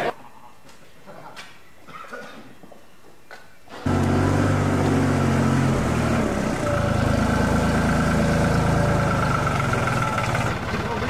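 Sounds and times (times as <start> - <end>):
engine idling: 3.8 - 11.0.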